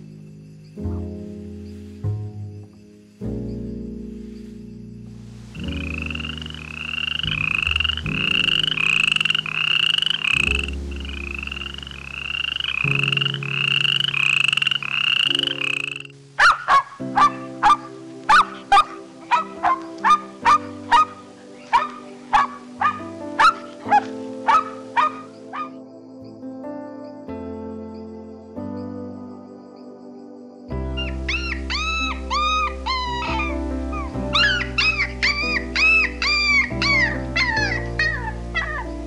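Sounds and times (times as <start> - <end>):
soft background music: 0.0 - 39.0
sharp clicking animal calls: 12.2 - 25.8, 34.4 - 38.9
short rising animal calls: 31.0 - 39.0.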